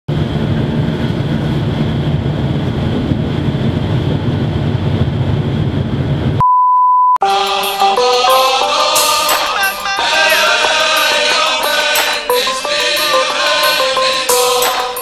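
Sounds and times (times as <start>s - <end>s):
train rumbling on rails: 0.1s - 6.4s
steady beep: 6.4s - 15.0s
music: 7.2s - 15.0s.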